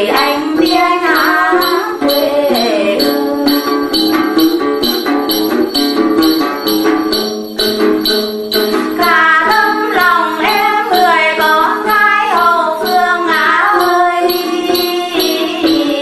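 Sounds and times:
woman singing: 0.0 - 3.9, 9.0 - 16.0
jingling bells: 0.0 - 16.0
lute accompaniment: 0.0 - 16.0.

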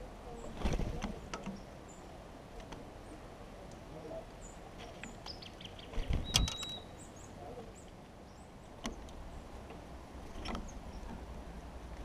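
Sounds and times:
songbirds chirping: 0.0 - 12.0
sharp clicks and knocks: 0.6 - 1.6, 8.8 - 11.3.

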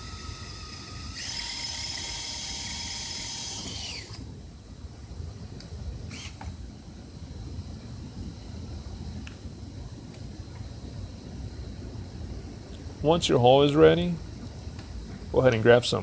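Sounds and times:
cordless drill boring through metal: 0.0 - 4.2, 6.1 - 6.4.

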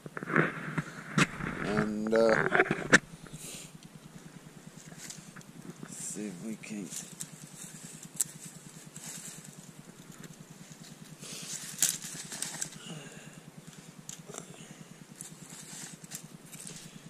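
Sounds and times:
campfire crackling and popping: 6.9 - 12.9.

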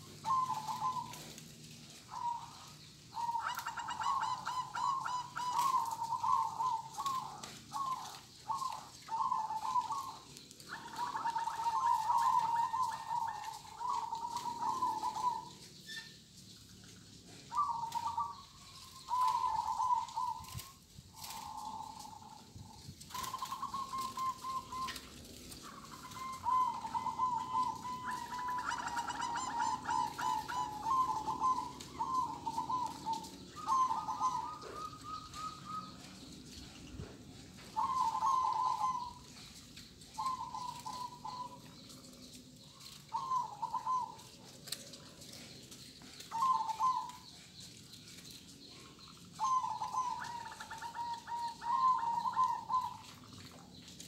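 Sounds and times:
higher bird trill: 0.0 - 1.3, 2.1 - 16.3, 17.5 - 36.7, 37.7 - 44.4
doves cooing: 0.0 - 54.0.

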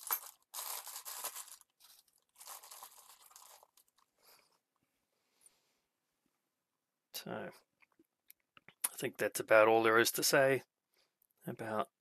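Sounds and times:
plastic packaging crinkling: 0.0 - 4.1.

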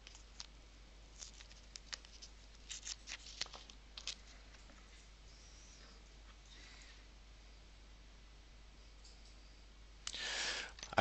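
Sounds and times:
paper pack clicks and crinkles: 1.1 - 4.7.

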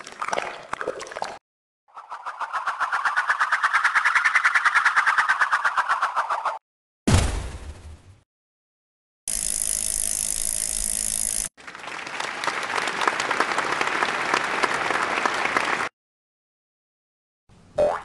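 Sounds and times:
recorded applause: 11.6 - 15.9.

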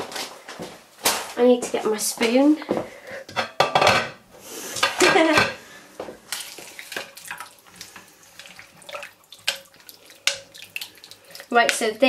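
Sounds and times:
spoon scraping and knocking pot: 3.3 - 4.2, 9.4 - 10.7
stew sloshing: 5.0 - 12.0.

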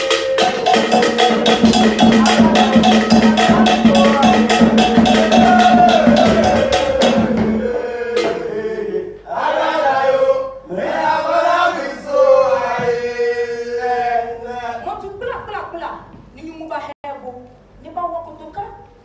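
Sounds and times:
person chanting: 0.0 - 7.3
fast hand-drum rhythm: 0.0 - 8.5.

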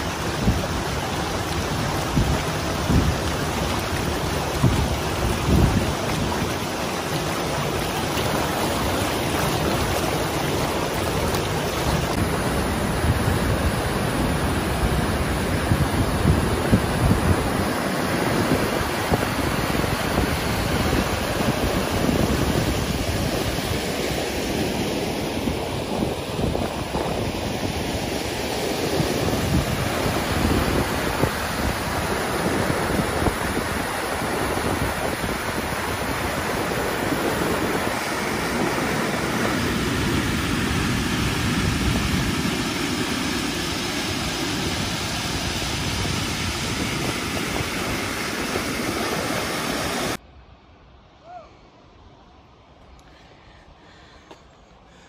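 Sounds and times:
river rapids rushing over rocks: 0.0 - 25.2.

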